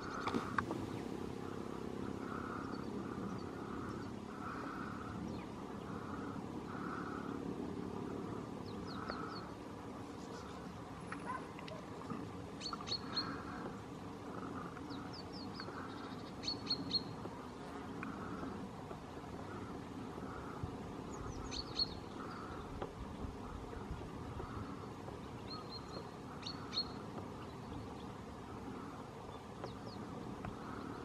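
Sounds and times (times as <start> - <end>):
goldfinches twittering: 0.0 - 11.4, 12.1 - 31.0
steady low outdoor hum: 0.0 - 31.0.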